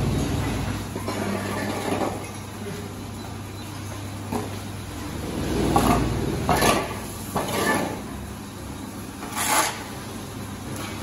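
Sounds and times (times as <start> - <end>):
shovel scraping on concrete: 5.4 - 8.0, 9.2 - 9.9.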